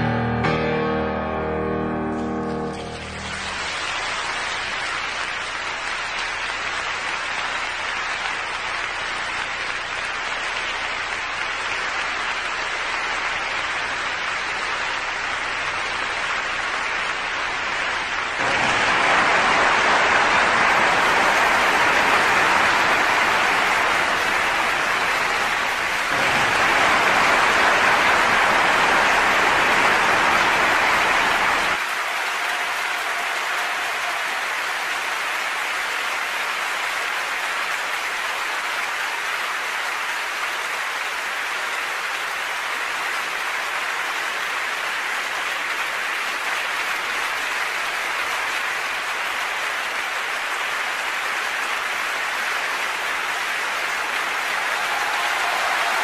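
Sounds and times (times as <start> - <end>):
audience applauding: 0.0 - 56.0.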